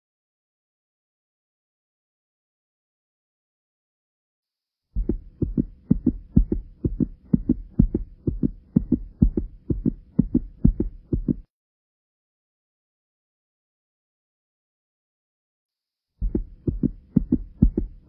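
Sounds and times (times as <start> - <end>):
deep thumps in pairs: 5.0 - 11.5, 16.2 - 18.0.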